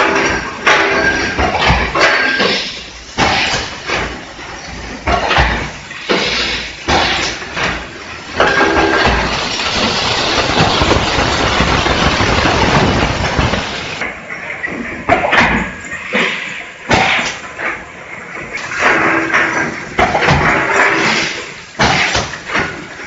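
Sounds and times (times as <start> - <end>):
machine knocks and clatters: 0.0 - 23.0
loud rushing noise: 8.3 - 14.0.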